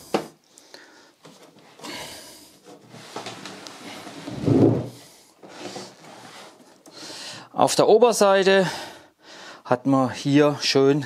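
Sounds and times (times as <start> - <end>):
plastic case scraping on wood: 2.6 - 7.0.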